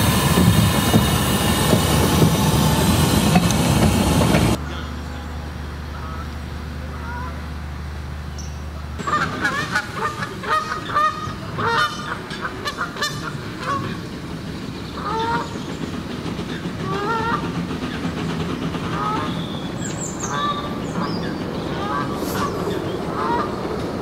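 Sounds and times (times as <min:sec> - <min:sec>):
train noise: 0:00.0 - 0:24.0
geese honking: 0:04.5 - 0:07.6, 0:08.7 - 0:14.0, 0:15.0 - 0:15.5, 0:20.2 - 0:23.6.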